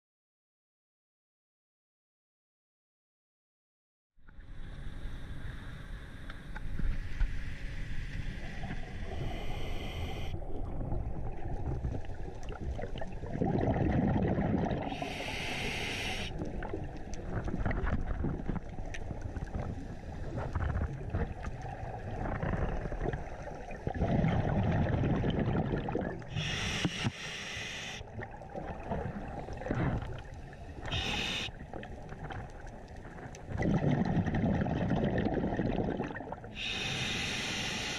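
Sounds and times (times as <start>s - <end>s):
low underwater rumble: 4.3s - 14.9s
bubbles gurgling: 10.4s - 15.2s, 20.3s - 26.4s, 28.1s - 36.6s.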